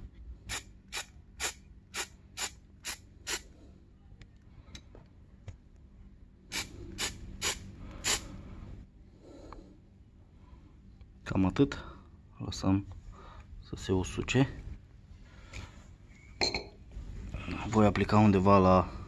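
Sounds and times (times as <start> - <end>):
spray paint can hissing: 0.5 - 3.4, 6.5 - 8.2.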